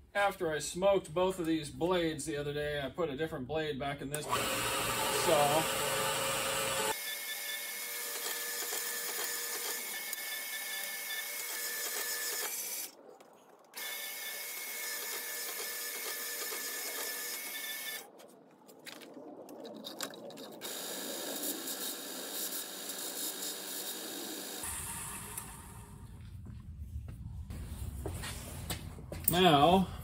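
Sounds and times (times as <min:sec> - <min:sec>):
bandsaw cutting: 0:04.2 - 0:12.9, 0:13.8 - 0:18.0, 0:20.6 - 0:24.7.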